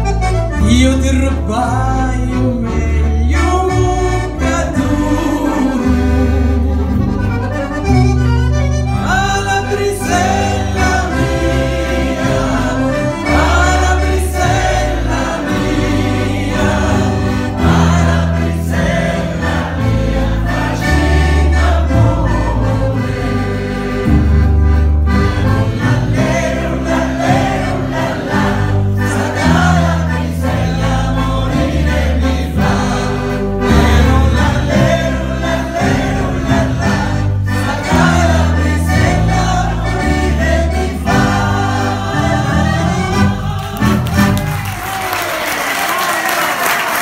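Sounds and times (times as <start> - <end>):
deep bass line: 0.0 - 44.7
band accompaniment: 0.0 - 47.0
women singing together: 10.0 - 24.0, 26.1 - 44.3.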